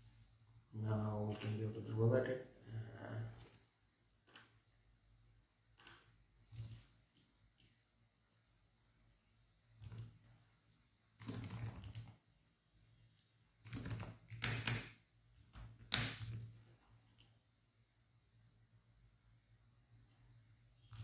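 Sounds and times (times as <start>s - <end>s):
typing on computer keyboard: 1.2s - 1.8s, 3.2s - 4.6s, 5.8s - 7.7s, 9.8s - 10.4s, 11.2s - 12.2s, 13.6s - 17.3s.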